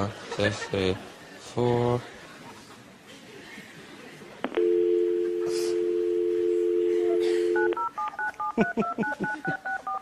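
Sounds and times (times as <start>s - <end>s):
telephone dial tone: 4.5s - 8.5s
touch-tone keypad beeps: 4.5s - 10.0s.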